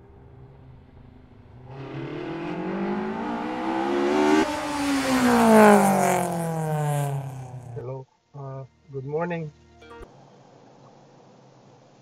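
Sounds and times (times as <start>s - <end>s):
car engine revving: 0.0s - 7.8s
car passing by: 0.0s - 7.8s.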